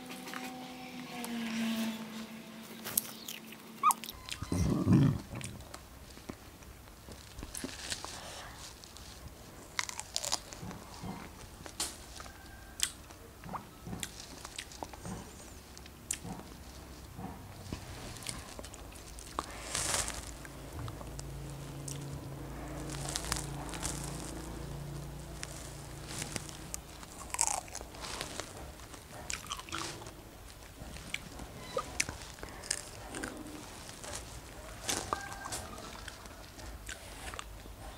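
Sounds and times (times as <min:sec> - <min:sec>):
person chewing: 0:03.0 - 0:05.8, 0:09.6 - 0:12.2, 0:12.8 - 0:16.6, 0:17.8 - 0:37.6.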